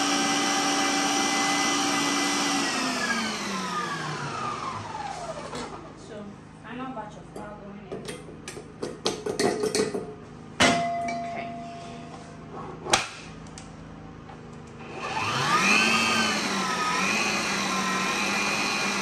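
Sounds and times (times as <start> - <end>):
stand mixer running: 0.0 - 6.0, 14.7 - 19.0
bowls and utensils knocking: 7.4 - 12.1.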